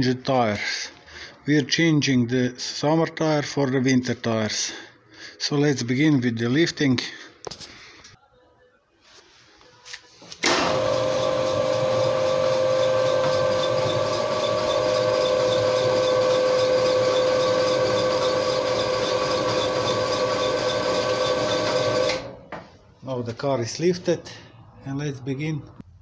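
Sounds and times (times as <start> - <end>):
electric car lift motor humming: 10.4 - 22.4.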